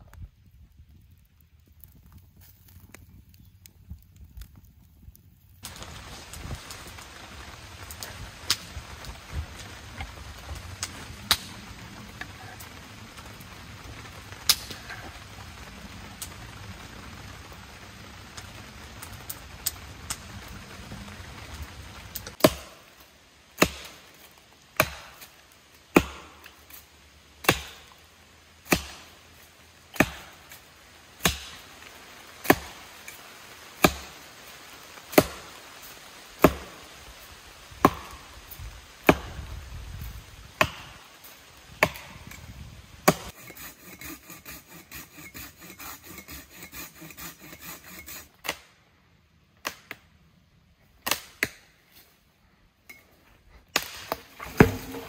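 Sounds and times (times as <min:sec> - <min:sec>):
wood chopping blows: 0:22.2 - 0:22.9, 0:23.6 - 0:24.0, 0:24.8 - 0:26.8, 0:27.4 - 0:28.0, 0:28.6 - 0:29.1, 0:29.9 - 0:30.6, 0:31.2 - 0:31.6, 0:36.4 - 0:36.9, 0:37.8 - 0:39.6, 0:40.5 - 0:41.1, 0:41.7 - 0:42.4, 0:43.0 - 0:48.7, 0:53.7 - 0:55.0.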